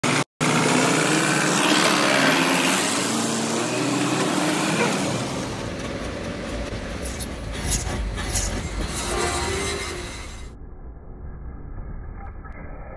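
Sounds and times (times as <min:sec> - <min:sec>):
small engine running: 0:00.0 - 0:08.8
rough machine rumble: 0:00.0 - 0:10.6.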